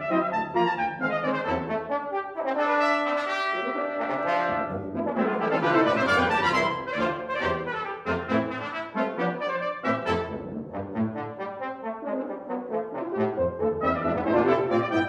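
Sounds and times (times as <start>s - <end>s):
brass quintet playing classical piece: 0.0s - 15.0s.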